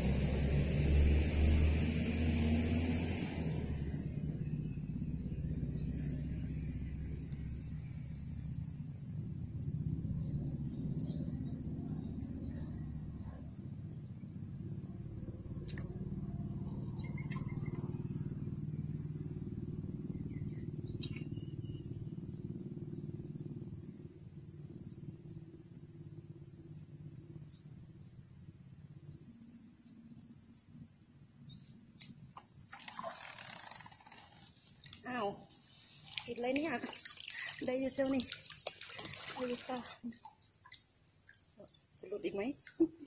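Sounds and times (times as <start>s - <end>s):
low rumble: 3.3s - 22.2s.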